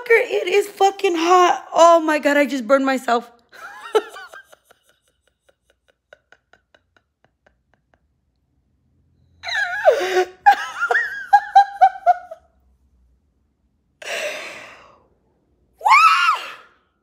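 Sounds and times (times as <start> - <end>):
woman laughing: 3.5 - 8.1, 9.5 - 12.6.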